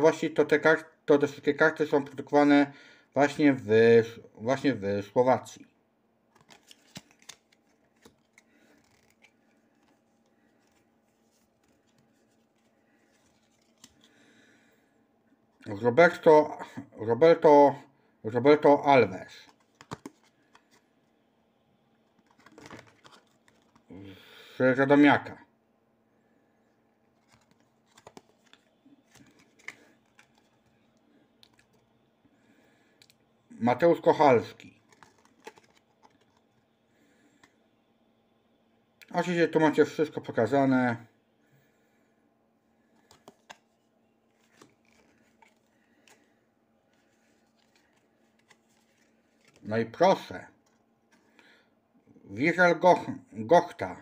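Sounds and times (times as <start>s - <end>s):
cards sliding and rustling: 6.3s - 14.2s, 19.4s - 20.9s, 22.1s - 23.9s, 27.2s - 30.9s, 34.8s - 36.5s, 42.9s - 49.7s.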